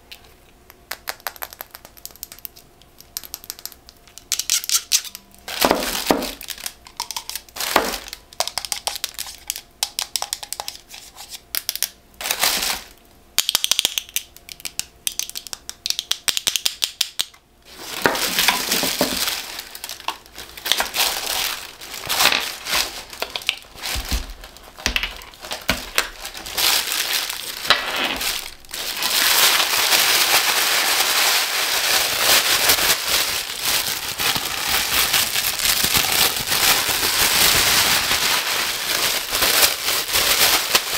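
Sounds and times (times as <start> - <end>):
tissue paper crinkling: 5.5 - 8.2, 12.2 - 12.9, 17.7 - 40.9.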